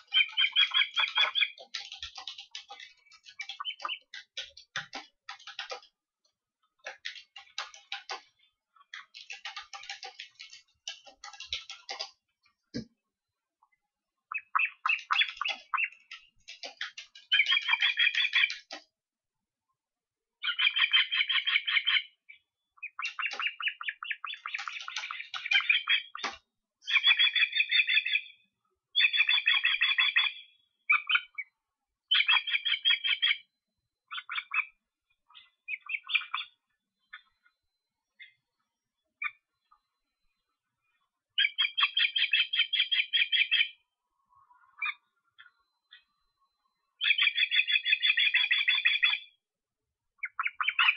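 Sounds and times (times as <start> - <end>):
ospreys chirping: 0.0 - 5.9, 14.3 - 18.8, 22.8 - 26.2.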